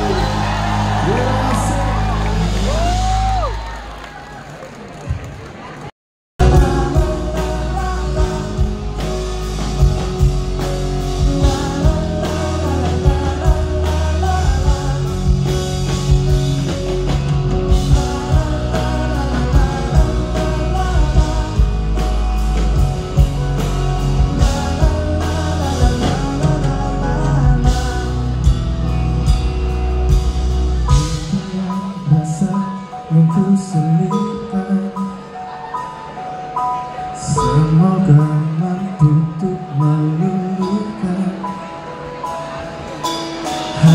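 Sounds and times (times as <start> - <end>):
bass and drum beat: 0.0 - 3.5, 6.4 - 31.7
rock band playing: 0.0 - 3.9, 6.4 - 43.9
person singing into a microphone: 6.4 - 9.4, 11.0 - 16.0, 17.7 - 22.6, 24.1 - 28.7, 30.9 - 36.1, 37.2 - 41.9, 43.7 - 43.9.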